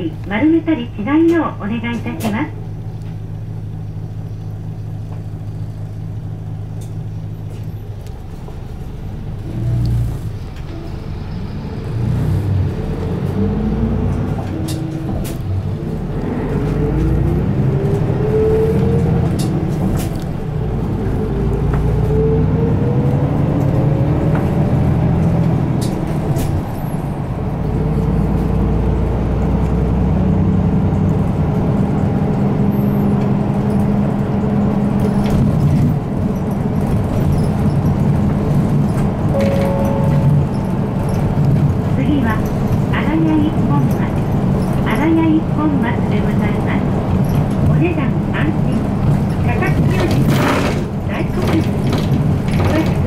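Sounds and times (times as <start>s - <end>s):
bus diesel engine: 0.0s - 53.0s.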